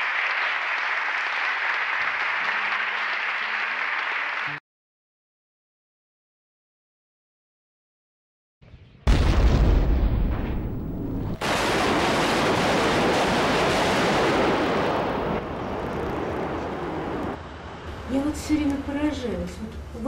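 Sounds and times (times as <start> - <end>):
howitzer blast with deep rumble: 9.1 - 17.4.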